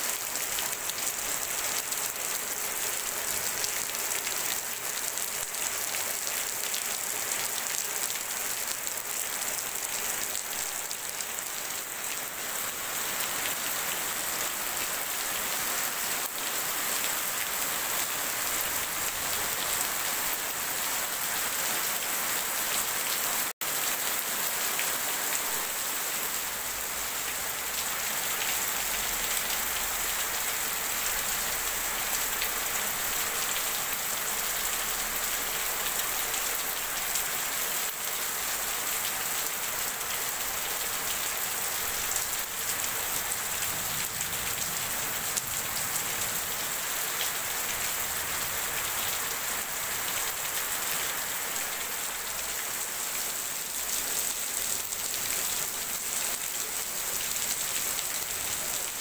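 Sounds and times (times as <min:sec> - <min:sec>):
steady rain into puddle: 0:00.0 - 0:59.0.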